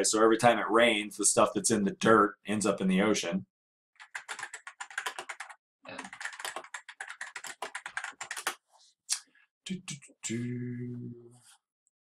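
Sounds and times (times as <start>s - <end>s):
rapid typing on keyboard: 4.0s - 8.6s
steady low tone: 9.7s - 11.4s.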